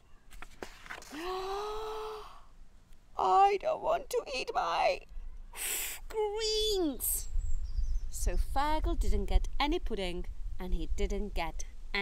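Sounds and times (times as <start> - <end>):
book page turning clicks: 0.3 - 1.2.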